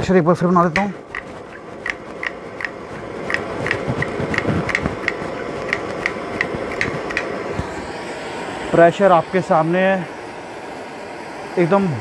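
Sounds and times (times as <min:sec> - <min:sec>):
stove burner rushing: 0:00.0 - 0:12.0.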